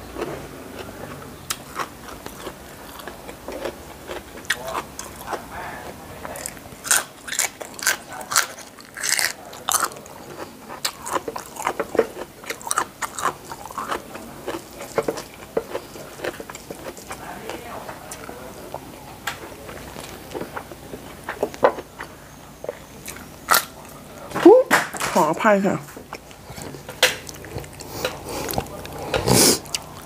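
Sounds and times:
person crunching raw bean: 6.3s - 17.2s, 22.7s - 24.0s.

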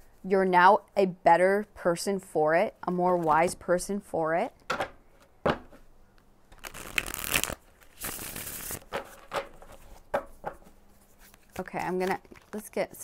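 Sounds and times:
cards shuffling: 6.5s - 12.7s.

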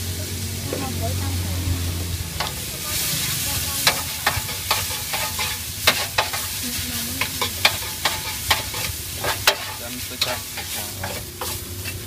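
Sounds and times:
food sizzling in wok: 0.0s - 12.0s
metal spatula scraping pan: 2.4s - 12.0s.

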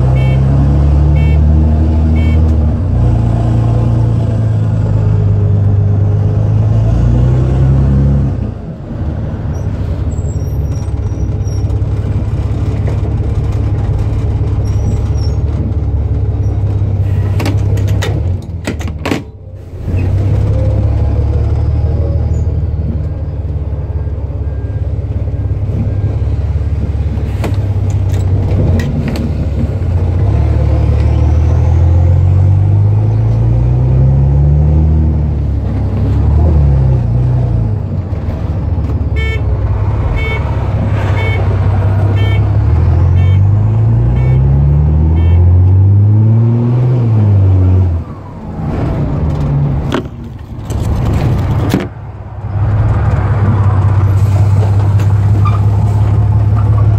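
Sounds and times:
loud bus diesel engine accelerating: 0.0s - 56.9s.

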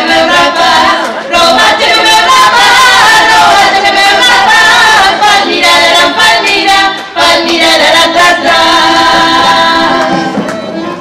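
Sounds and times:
women singing folk song amplified: 0.0s - 11.0s.

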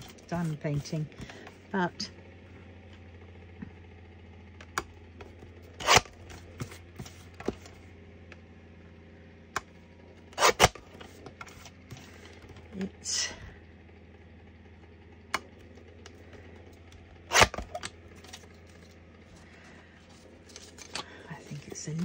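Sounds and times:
card and paper rustling: 0.0s - 1.7s, 5.2s - 7.8s, 10.8s - 12.8s, 16.3s - 22.0s
steady low hum: 0.0s - 22.0s.

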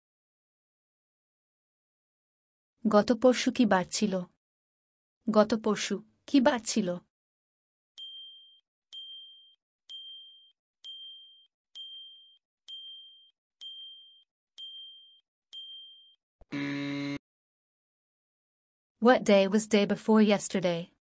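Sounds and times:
timer buzz: 16.4s - 17.2s.

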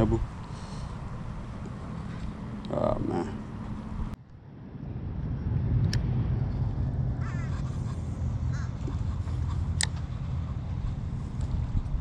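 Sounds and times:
wind buffeting microphone: 3.5s - 12.0s
bird calls: 7.2s - 9.7s.

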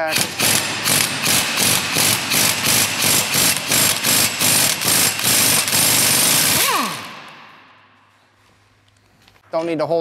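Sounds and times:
pneumatic impact wrench hammering: 0.0s - 7.6s.

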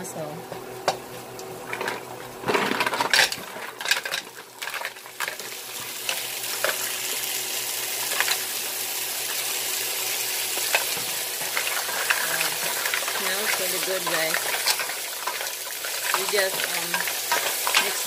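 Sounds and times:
frying sizzle: 0.7s - 18.0s
mussel shells clattering in pan: 1.7s - 7.3s, 8.0s - 8.5s, 10.4s - 18.0s.

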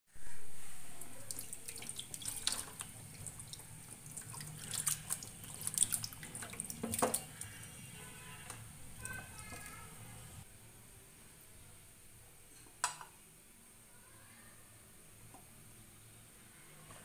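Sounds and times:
water sloshing in a bowl: 0.9s - 10.4s.

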